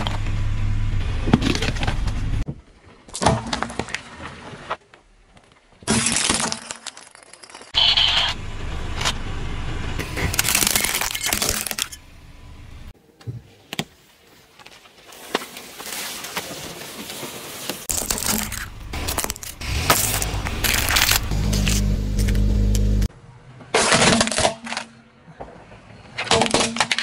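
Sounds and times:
low rumble: 0.0 - 2.4, 18.0 - 23.1.

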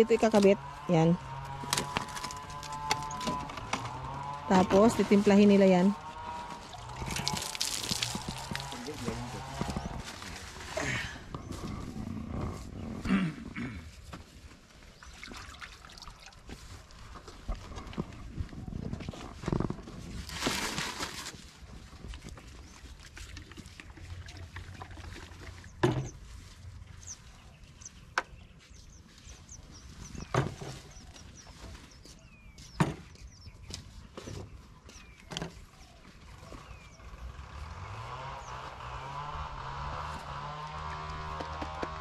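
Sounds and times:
motor rising in pitch: 0.2 - 10.0, 36.9 - 42.0.

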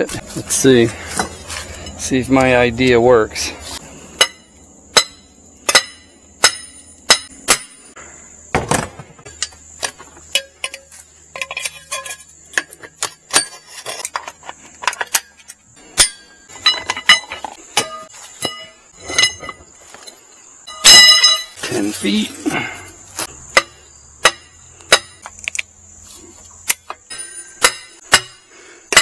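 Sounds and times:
hammer striking metal pipe: 4.2 - 7.9, 16.0 - 19.6, 20.7 - 21.6, 23.6 - 25.3, 26.7 - 29.0
light knocks and clinks: 9.3 - 21.7.

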